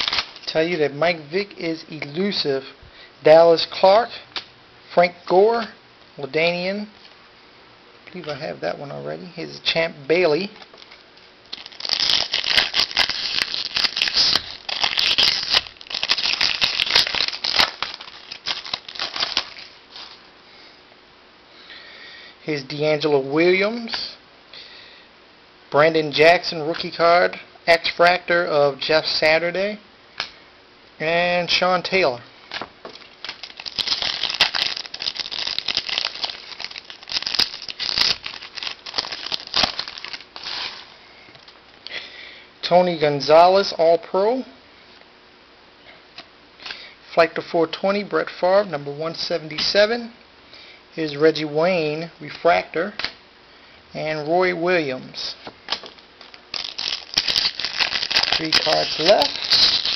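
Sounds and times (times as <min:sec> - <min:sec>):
foil wrapper crinkling and tearing: 0:00.0 - 0:00.8, 0:10.5 - 0:20.3, 0:32.5 - 0:41.0, 0:55.7 - 0:59.9.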